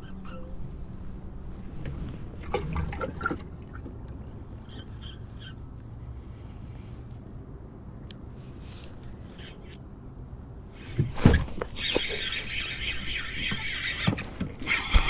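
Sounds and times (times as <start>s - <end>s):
rushing splashing water: 2.4s - 4.0s.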